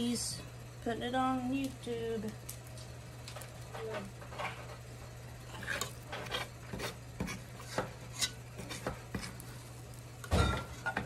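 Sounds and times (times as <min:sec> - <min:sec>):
metal scoop scraping a steel pot: 0:05.5 - 0:07.0
pot clunking with metallic ring: 0:10.3 - 0:11.0.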